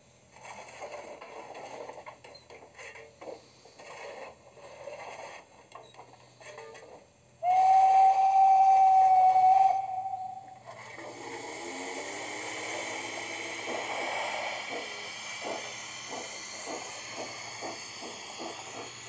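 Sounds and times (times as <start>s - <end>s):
steam whistle: 7.4s - 14.6s
steam chuffs through loudspeaker: 7.4s - 19.0s.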